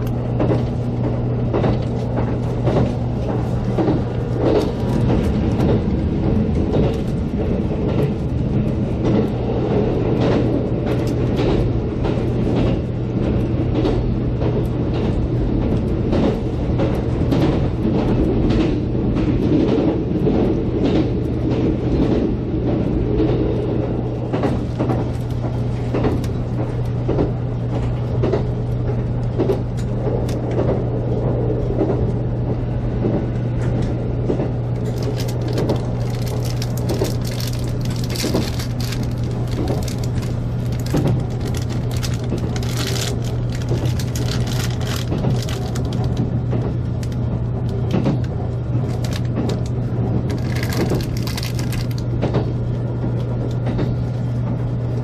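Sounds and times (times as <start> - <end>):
train hum and rumble: 0.0 - 55.0
running gear clicks and knocks: 34.8 - 52.5.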